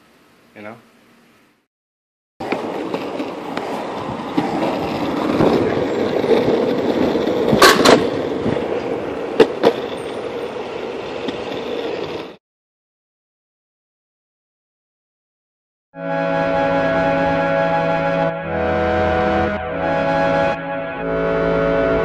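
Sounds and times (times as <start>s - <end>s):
longboard wheels rolling on concrete: 2.4s - 12.4s
wheels clacking over seams: 2.4s - 12.4s.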